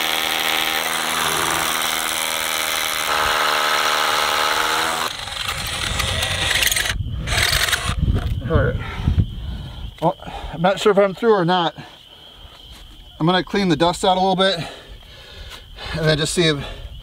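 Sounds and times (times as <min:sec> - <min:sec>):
rotary hammer drilling into concrete: 0:00.0 - 0:08.0.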